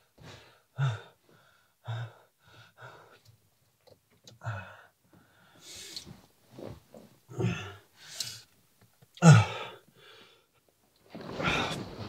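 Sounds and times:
person gasping and breathing hard: 0.2 - 3.2, 7.3 - 8.5, 9.2 - 10.5
person groaning: 7.3 - 7.8, 9.2 - 9.8.

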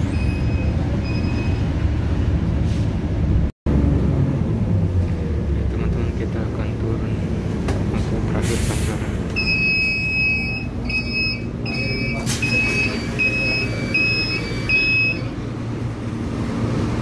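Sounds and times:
bus door warning beeps: 0.0 - 2.0, 9.3 - 15.4
bus low hum: 0.0 - 17.0.

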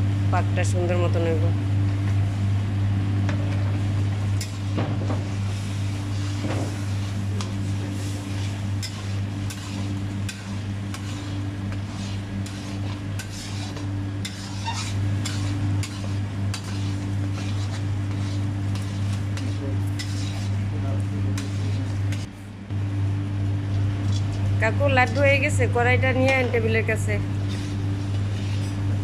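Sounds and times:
steady low hum: 0.0 - 29.0
metal spatula scraping a pan: 6.1 - 20.6, 21.4 - 22.3, 27.4 - 28.8.

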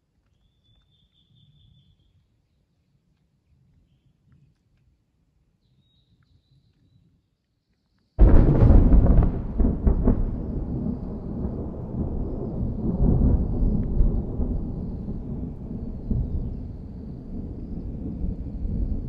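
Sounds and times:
thunder clap and rumble: 8.2 - 19.0.

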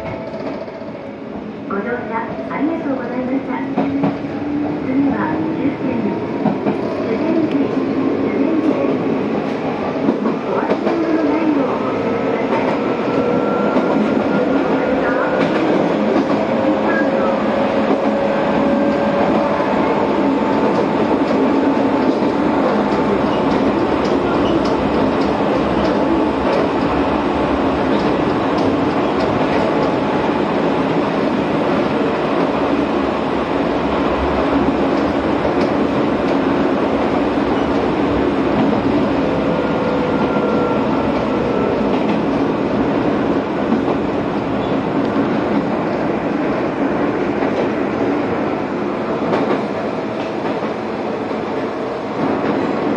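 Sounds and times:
train wheels rumbling on rail: 0.0 - 52.9
rail-joint ticks: 22.9 - 26.7, 28.0 - 30.0.

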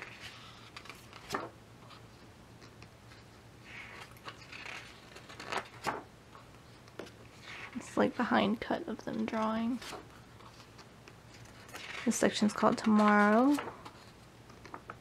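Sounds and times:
pages flapping: 0.0 - 6.1, 9.2 - 15.0
paper rustling: 0.0 - 8.3, 9.1 - 15.0.

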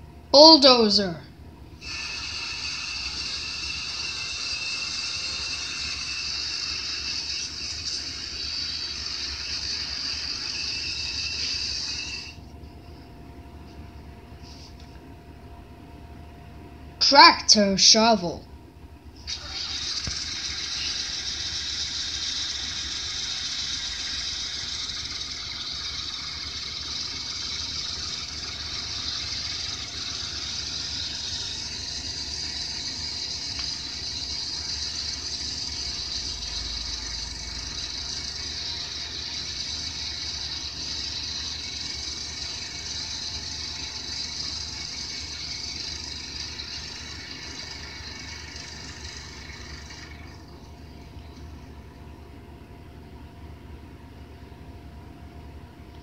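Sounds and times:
steady hiss: 19.2 - 50.4.

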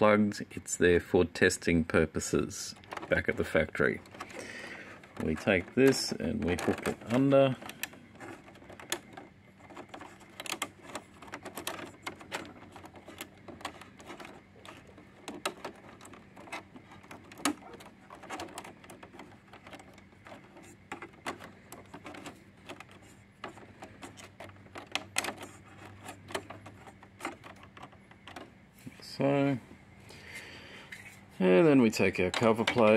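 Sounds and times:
faint steady hum: 0.0 - 32.9
fingers clicking on plastic: 2.7 - 28.5.

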